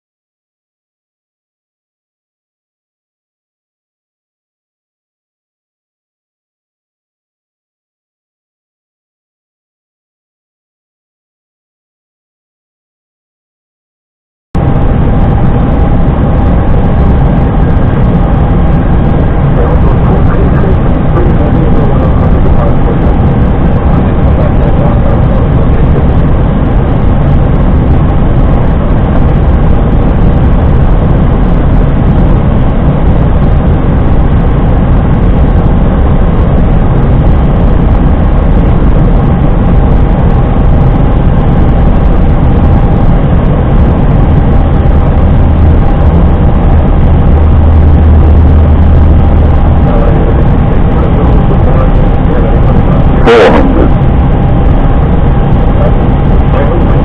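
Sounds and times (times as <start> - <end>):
faint steady hum: 14.6 - 57.0
low engine rumble: 14.6 - 57.0
rush of airflow: 14.6 - 57.0.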